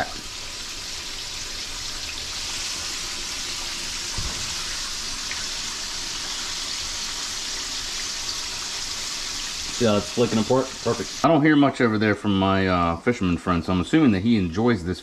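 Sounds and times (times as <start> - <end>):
food deep-frying in hot oil: 0.0 - 11.3.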